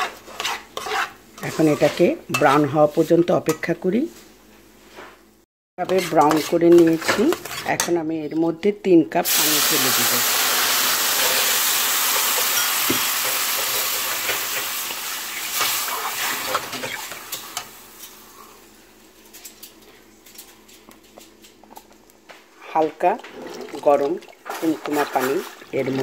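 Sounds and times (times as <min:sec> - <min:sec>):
spoon stirring clicks and scrapes: 0:00.0 - 0:02.4, 0:05.8 - 0:07.8
water sizzling in hot pan: 0:09.3 - 0:18.0.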